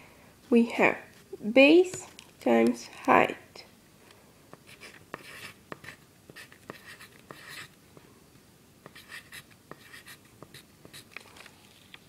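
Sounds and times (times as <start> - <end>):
pencil scratching on paper: 4.6 - 7.7, 8.8 - 11.1.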